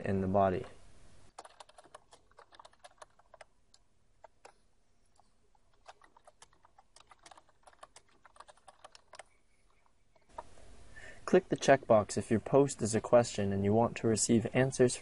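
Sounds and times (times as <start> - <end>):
computer keyboard typing: 1.3 - 10.5.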